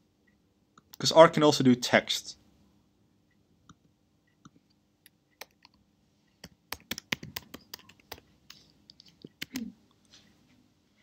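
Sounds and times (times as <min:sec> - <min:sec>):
computer keyboard typing: 0:05.3 - 0:05.8, 0:06.4 - 0:09.7.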